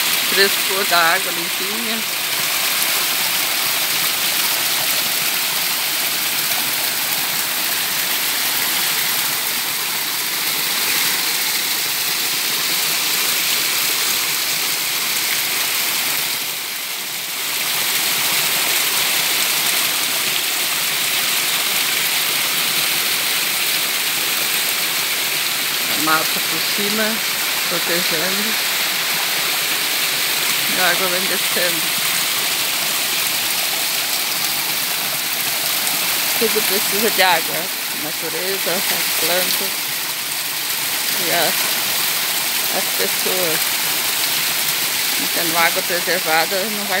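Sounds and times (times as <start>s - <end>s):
small waterfall splashing on rock: 2.1s - 26.0s, 31.8s - 36.4s, 39.0s - 45.2s.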